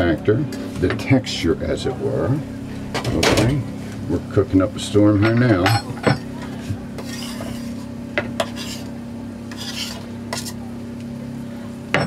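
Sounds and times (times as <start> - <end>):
low hum: 0.2 - 7.0
utensil scraping frying pan: 5.8 - 10.6.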